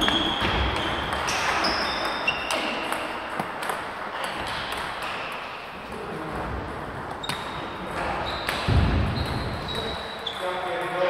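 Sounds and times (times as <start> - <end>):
table tennis balls clicking: 0.0 - 5.7
low thump: 8.6 - 9.9.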